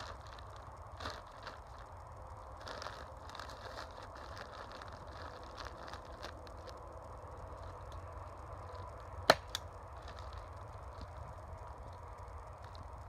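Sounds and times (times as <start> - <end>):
plastic sheet rustling and crinkling: 0.0 - 8.0, 9.9 - 12.0.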